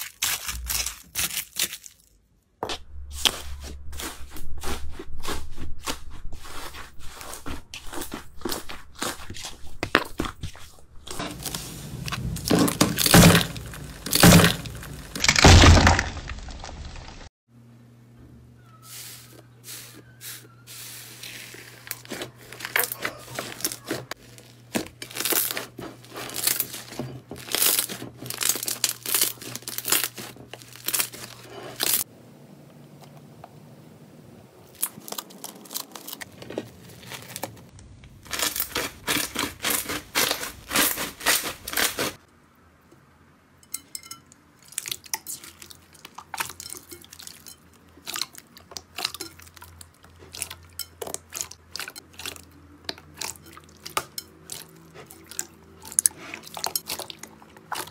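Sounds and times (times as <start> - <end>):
slime crackling and popping: 24.4 - 26.8, 27.4 - 32.0.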